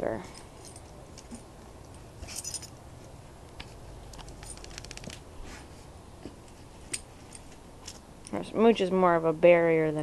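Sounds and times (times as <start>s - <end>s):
dog paws scratching in dirt: 2.2s - 5.8s.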